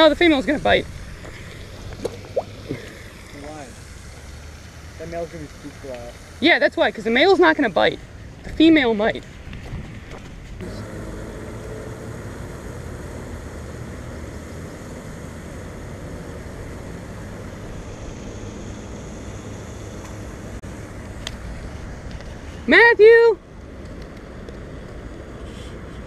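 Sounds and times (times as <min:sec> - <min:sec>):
wind buffeting microphone: 0:00.0 - 0:02.8, 0:08.0 - 0:10.7.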